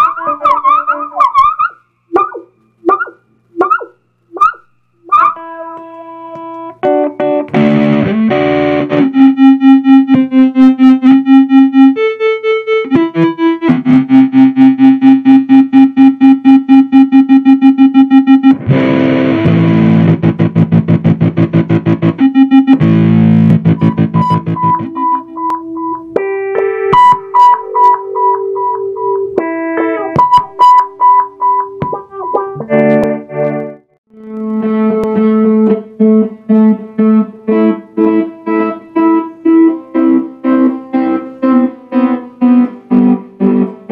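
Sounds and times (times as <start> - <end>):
pulsing electronic feedback tones: 0.0 - 5.6.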